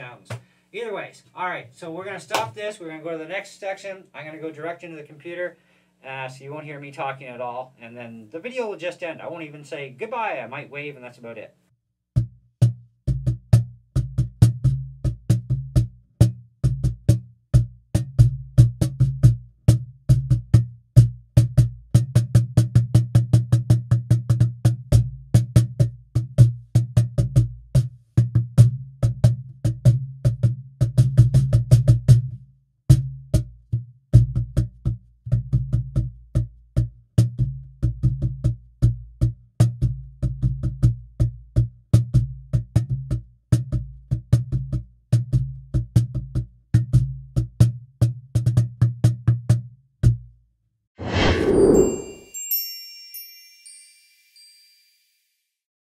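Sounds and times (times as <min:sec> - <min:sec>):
cajon slaps and bass strokes: 0:00.3 - 0:00.5, 0:02.2 - 0:02.6.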